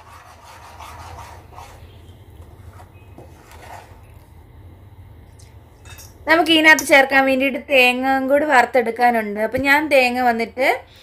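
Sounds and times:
spoon stirring batter in a bowl: 0.0 - 4.3
low steady hum: 0.0 - 11.0.

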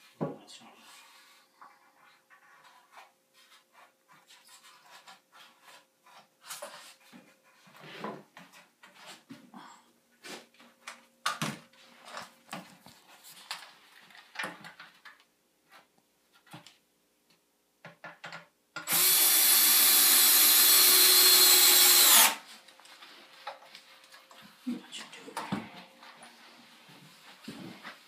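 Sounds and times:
cordless drill running: 18.9 - 22.4.

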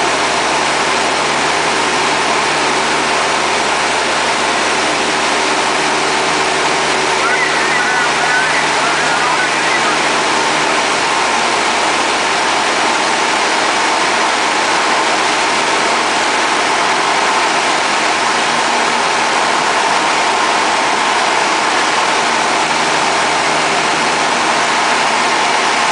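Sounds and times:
airplane engine and propeller: 0.0 - 25.9
faint hum: 7.0 - 11.0.

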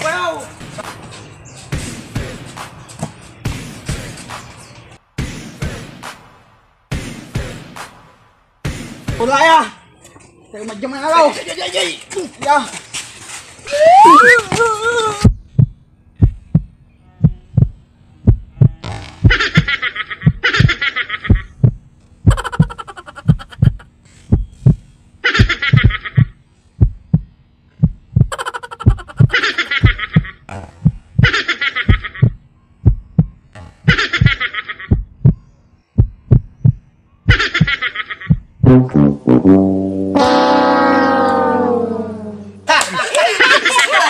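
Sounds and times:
heartbeat thumps: 15.2 - 24.8, 25.4 - 39.0.

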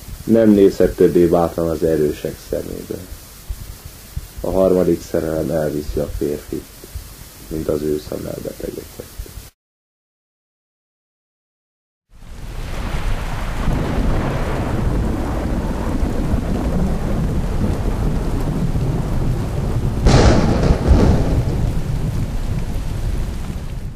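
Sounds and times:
rain: 0.0 - 9.6, 12.1 - 23.9
low rumbling thunder: 12.4 - 23.9
sharp thunderclap: 12.6 - 23.9.

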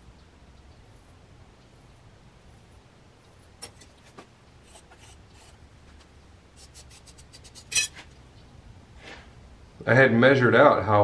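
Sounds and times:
clay ticks and rubbing: 0.5 - 8.2.

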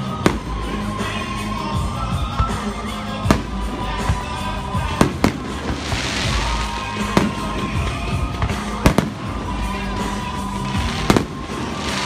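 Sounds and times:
music playing: 0.0 - 12.0
firework shells bursting: 3.2 - 12.0.

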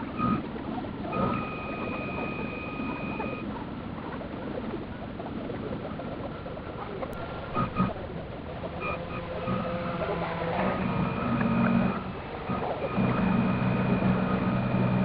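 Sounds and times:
wind and water noise: 0.0 - 15.0
steady high tone: 7.2 - 15.0.

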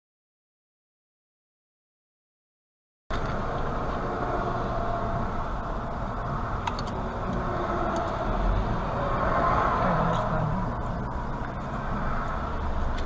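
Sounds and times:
car engine and road hum: 3.1 - 13.0.

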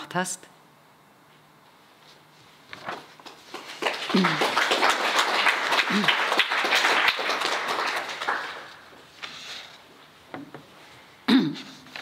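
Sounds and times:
audience applauding: 3.2 - 9.0.

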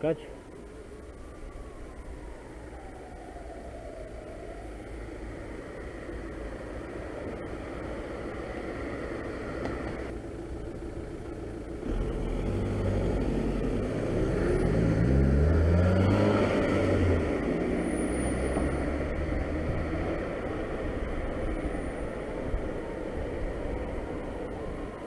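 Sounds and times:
car engine idling: 4.8 - 12.2
car accelerating away: 11.8 - 21.8.

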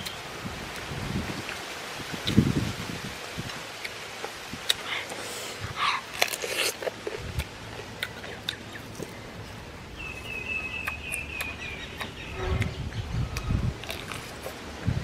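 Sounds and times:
crunchy chewing clicks: 5.9 - 9.2, 10.1 - 14.6.

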